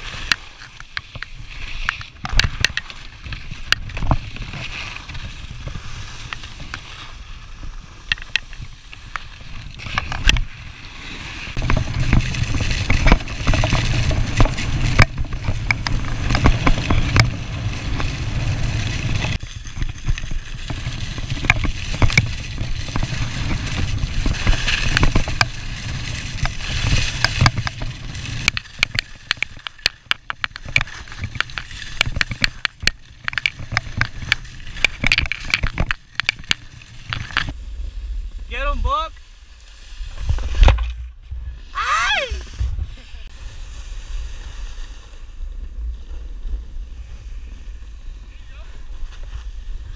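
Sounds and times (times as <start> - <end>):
skis clicking and clattering: 0.0 - 49.9
skis scraping over snow: 0.0 - 49.9
wind rumble on microphone: 0.0 - 49.9.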